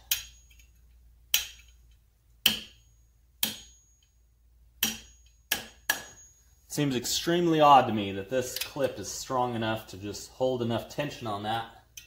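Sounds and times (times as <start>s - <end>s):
hammer tapping metal punch: 2.4s - 4.2s, 4.8s - 6.4s.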